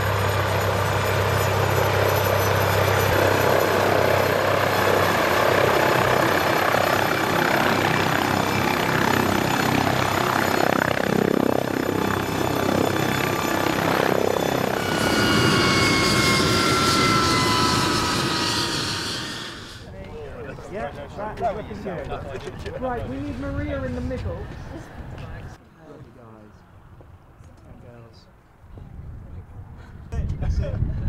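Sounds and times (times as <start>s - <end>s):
helicopter rotor and turbines: 0.0s - 25.6s
engine whine falling in pitch: 14.2s - 19.9s.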